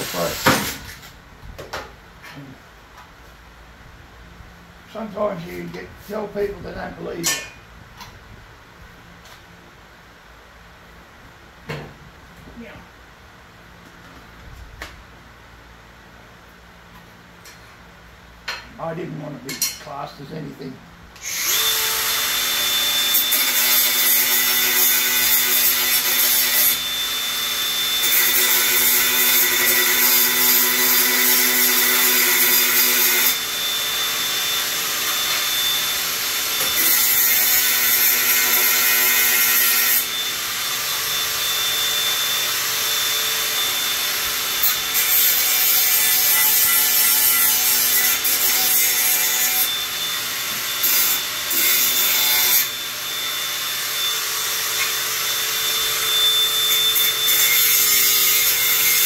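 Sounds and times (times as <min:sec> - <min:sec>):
power tool motor whine: 0:21.2 - 0:39.4, 0:40.0 - 0:45.8, 0:49.3 - 0:57.8.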